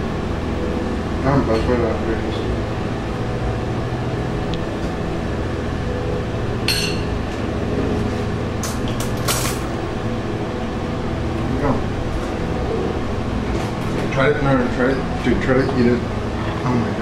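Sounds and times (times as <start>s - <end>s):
steady low hum: 0.0s - 17.0s
dishes clinking: 6.7s - 7.2s.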